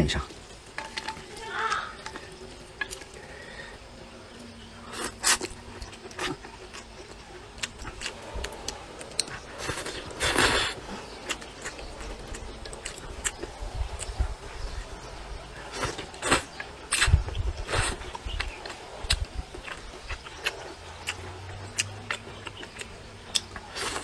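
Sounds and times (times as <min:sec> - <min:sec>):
noodles slurped and chewed: 0:04.8 - 0:14.5, 0:15.4 - 0:24.0.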